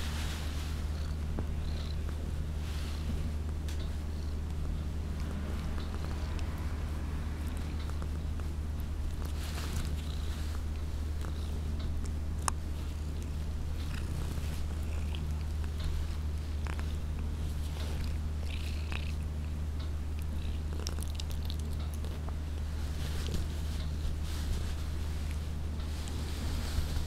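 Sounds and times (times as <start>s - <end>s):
cat purring: 0.0s - 27.0s.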